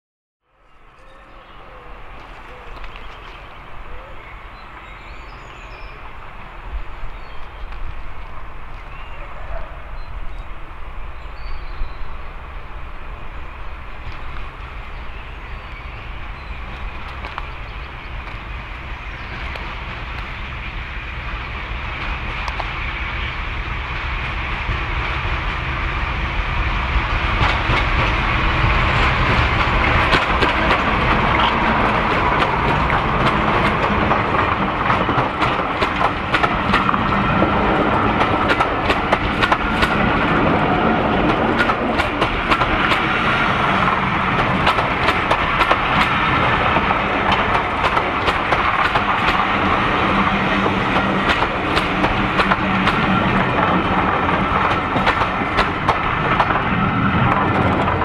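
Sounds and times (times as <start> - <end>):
diesel locomotive engine rumble: 0.5 - 58.0
train wheels clicking over rail joints: 16.0 - 25.8, 26.4 - 58.0.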